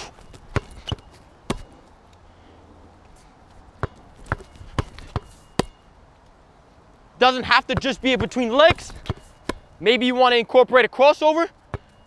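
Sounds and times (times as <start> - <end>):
basketball bouncing on court: 0.2 - 1.7, 3.8 - 5.8, 7.6 - 9.7, 11.7 - 12.0.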